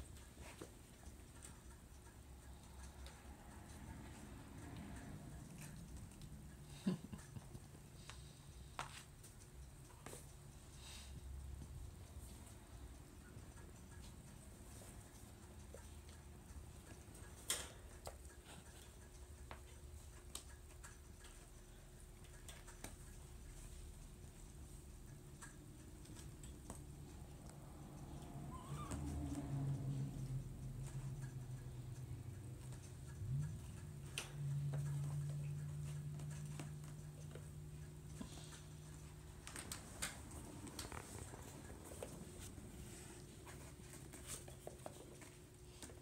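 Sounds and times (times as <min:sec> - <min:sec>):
kitten paws clicking on floor: 0:00.0 - 0:46.0
low room hum: 0:00.0 - 0:46.0
kitten paws pattering on floor: 0:32.0 - 0:46.0.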